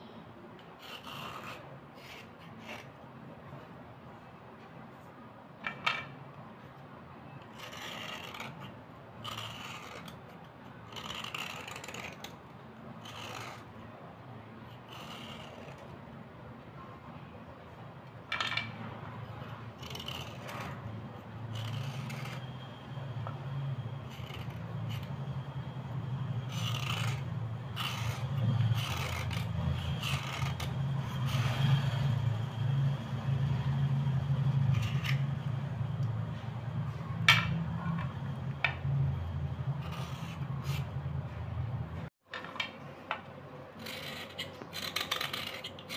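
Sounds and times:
knife scraping slate pencils: 0:00.6 - 0:03.0, 0:07.4 - 0:12.4, 0:13.0 - 0:13.7, 0:14.7 - 0:16.0, 0:18.6 - 0:32.2, 0:34.4 - 0:36.1, 0:39.7 - 0:41.0, 0:43.8 - 0:45.9.

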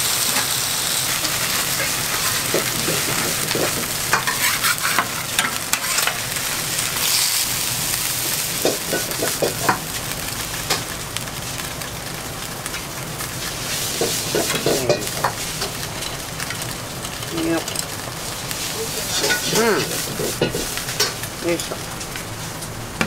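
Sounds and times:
food sizzling in a pan: 0:00.0 - 0:23.0
utensils knocking against pan: 0:01.2 - 0:06.2, 0:08.6 - 0:09.8, 0:14.0 - 0:15.7, 0:19.1 - 0:21.8.

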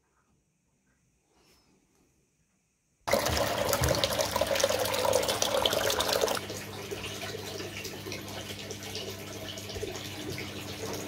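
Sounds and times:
washing machine motor hum: 0:03.1 - 0:11.0
water sloshing in washing machine drum: 0:03.1 - 0:11.0.

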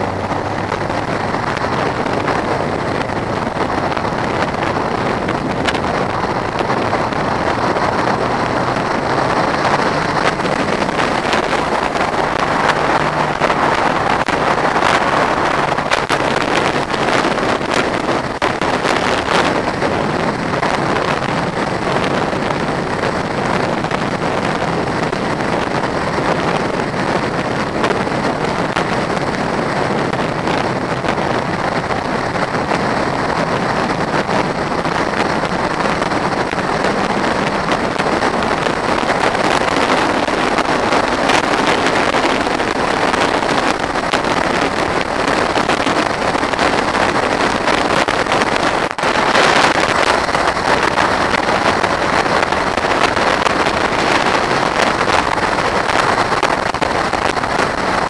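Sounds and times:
motorcycle engine running: 0:00.0 - 0:58.0
wind rushing over microphone: 0:00.0 - 0:58.0.

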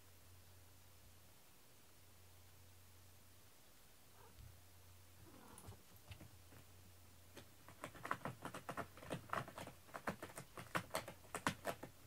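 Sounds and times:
crisp clicks and crackles: 0:07.3 - 0:12.0.

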